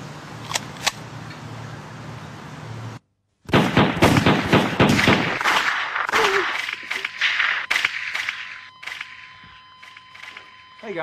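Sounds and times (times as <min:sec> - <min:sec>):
rapid gunshots: 0:03.5 - 0:09.3
low hum: 0:04.3 - 0:10.9
sharp clicks: 0:05.0 - 0:10.5.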